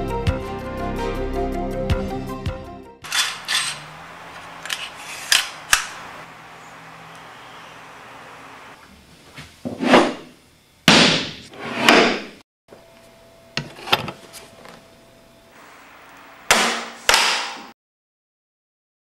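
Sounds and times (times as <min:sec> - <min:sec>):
mallet striking flooring nailer: 0:16.5 - 0:17.7.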